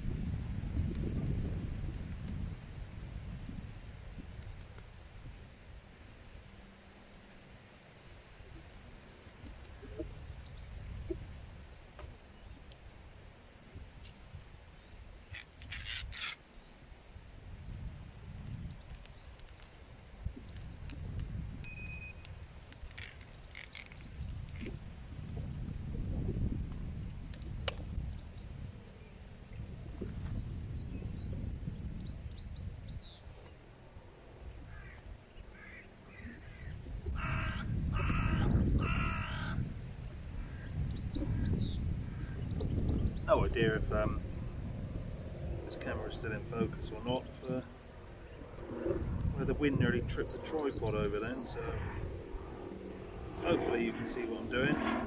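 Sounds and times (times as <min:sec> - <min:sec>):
wind rumble on microphone: 0:00.0 - 0:55.0
small birds chirping: 0:12.2 - 0:16.8, 0:18.4 - 0:22.3, 0:22.9 - 0:24.8, 0:30.3 - 0:33.6, 0:40.4 - 0:44.8, 0:45.8 - 0:48.6
crow cawing: 0:35.6 - 0:39.6.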